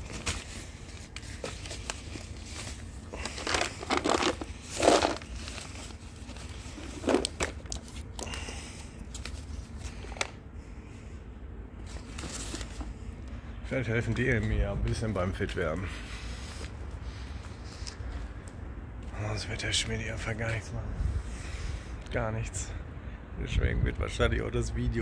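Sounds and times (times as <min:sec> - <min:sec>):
plastic bag crinkling: 0:00.0 - 0:10.3.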